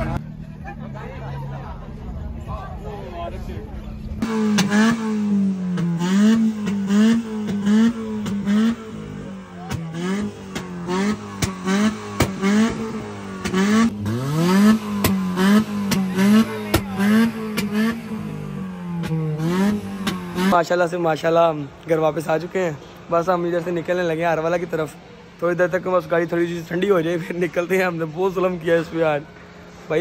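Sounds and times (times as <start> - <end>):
car engine revving: 4.0 - 30.0
exhaust pops and crackles: 9.6 - 18.0.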